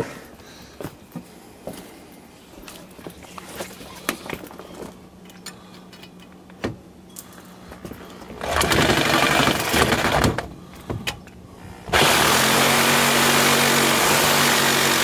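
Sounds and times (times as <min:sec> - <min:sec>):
reciprocating saw cutting metal: 0:11.9 - 0:15.0.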